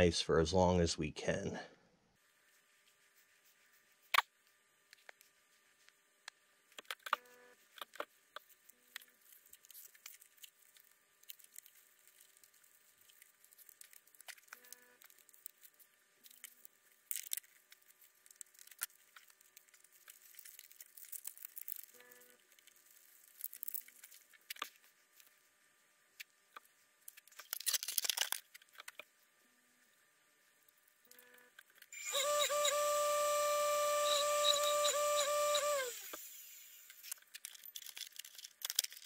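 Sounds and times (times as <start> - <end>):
handling clicks and rustles: 37.0 - 39.0.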